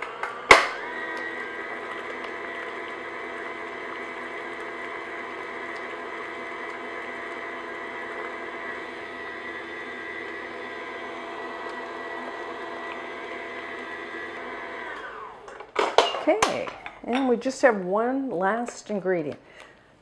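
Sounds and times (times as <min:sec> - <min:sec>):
stand mixer motor whirring: 0:00.0 - 0:15.6.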